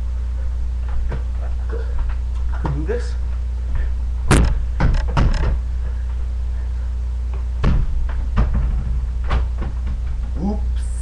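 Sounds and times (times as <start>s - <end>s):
steady low hum: 0.0s - 11.0s
sharp knocks and thumps: 4.3s - 5.6s, 7.3s - 10.4s.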